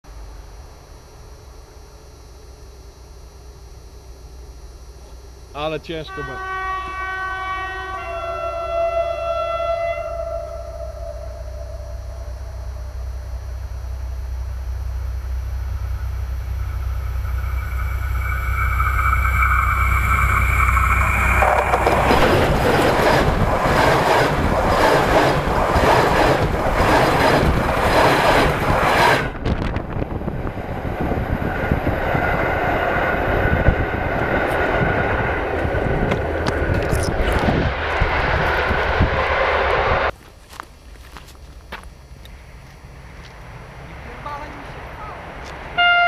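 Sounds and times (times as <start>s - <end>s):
rising whine: 0.1s - 40.2s
diesel train rolling over: 15.5s - 40.2s.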